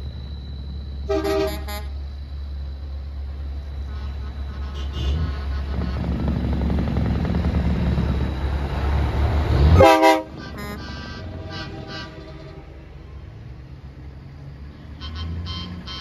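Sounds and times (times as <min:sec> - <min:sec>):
truck diesel engine rumbling: 0:00.0 - 0:16.0
air horn blast: 0:01.1 - 0:01.9, 0:03.9 - 0:06.1, 0:09.6 - 0:12.8.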